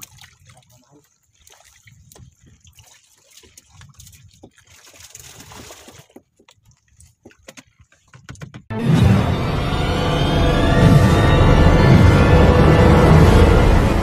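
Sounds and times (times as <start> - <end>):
water sloshing and splashing: 0.0 - 8.7
plastic bucket knocking: 7.3 - 8.7.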